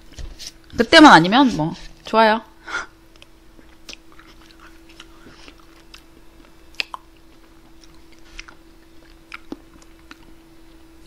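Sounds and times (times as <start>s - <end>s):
faint steady hum: 0.0s - 11.0s
mouth eating ice cream: 3.1s - 10.8s.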